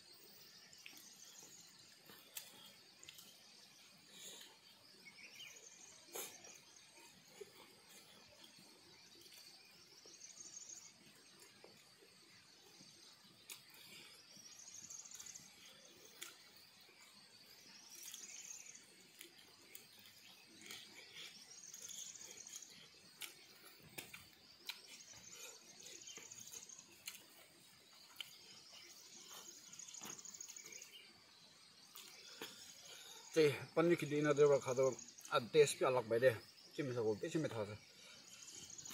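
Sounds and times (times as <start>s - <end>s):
insect chirring: 0.0s - 38.9s
eating with fingers: 0.7s - 4.9s, 12.7s - 30.9s, 31.8s - 33.0s.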